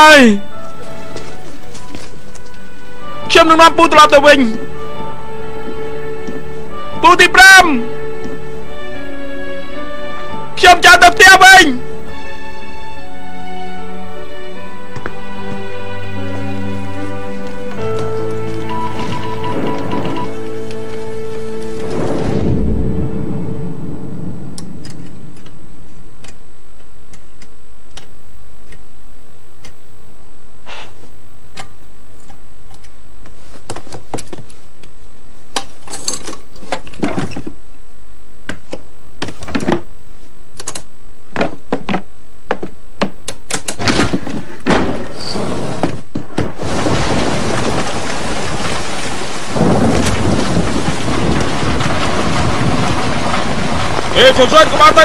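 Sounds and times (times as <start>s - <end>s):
heavy rain falling: 0.0s - 26.4s, 43.9s - 55.0s
low rumble: 18.7s - 26.3s
knocks and thuds: 43.8s - 54.4s.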